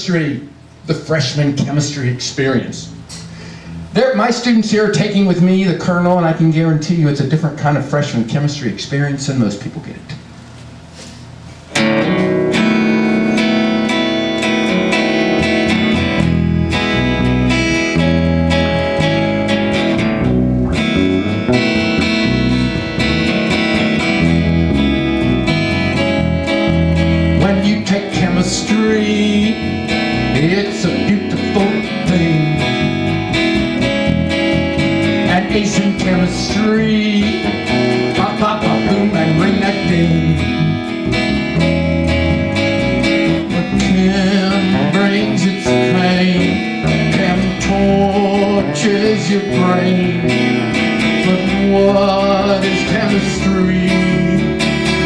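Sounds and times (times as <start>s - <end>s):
bass guitar: 0.7s - 6.8s, 10.8s - 55.0s
acoustic guitar strumming: 11.6s - 55.0s
man singing: 27.4s - 33.0s, 35.1s - 40.7s, 43.2s - 55.0s.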